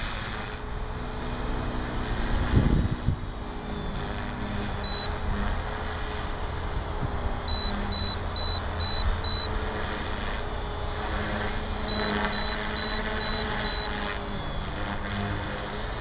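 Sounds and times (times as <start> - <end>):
rc helicopter humming: 0.0 - 16.0
short high beeps: 4.8 - 5.1, 7.5 - 9.5, 11.9 - 14.7.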